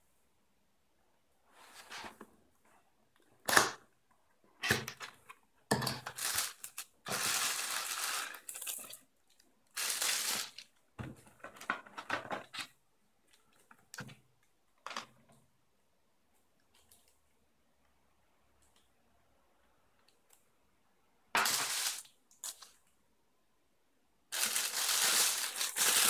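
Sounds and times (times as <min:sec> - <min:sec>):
plastic bag crinkling: 0:09.8 - 0:10.6, 0:21.4 - 0:22.7, 0:24.3 - 0:26.0.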